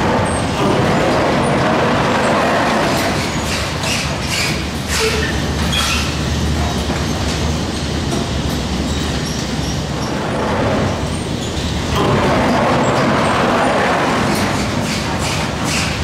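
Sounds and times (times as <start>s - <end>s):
gondola carriage rolling on rail: 0.0s - 16.0s
short squeaks and clacks: 2.8s - 10.4s, 14.3s - 16.0s.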